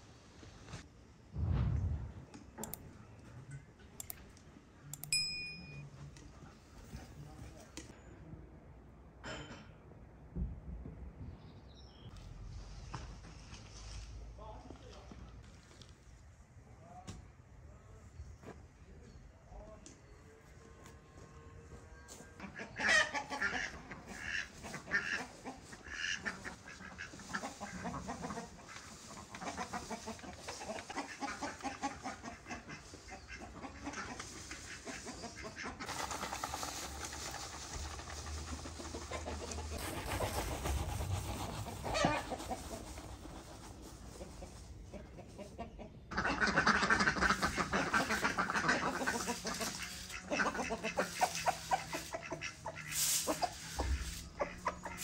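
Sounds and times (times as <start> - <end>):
chickens clucking: 22.0 - 55.0.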